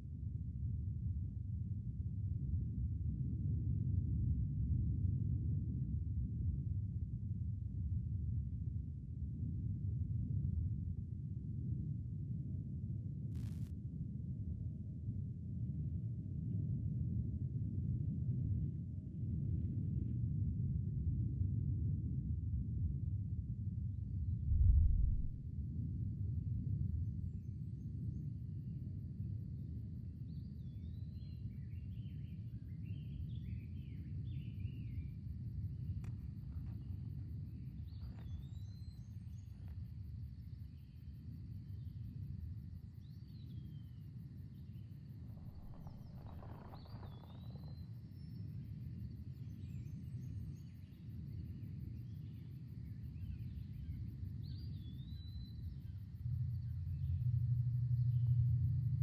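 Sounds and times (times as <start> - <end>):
steady low rumble: 24.1 - 26.0, 45.0 - 47.8, 56.1 - 59.0.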